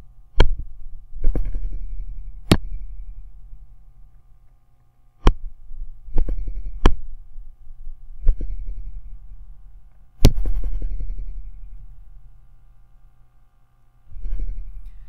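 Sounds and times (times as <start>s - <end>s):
faint steady hum: 0.0s - 15.0s
stylus tapping on tablet: 6.1s - 7.0s.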